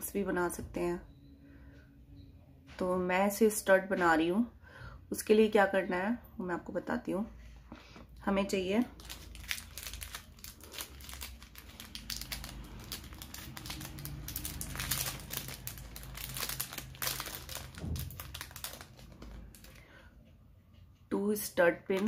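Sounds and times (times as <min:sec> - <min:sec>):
packaging rustling and crackling: 0:08.8 - 0:19.8.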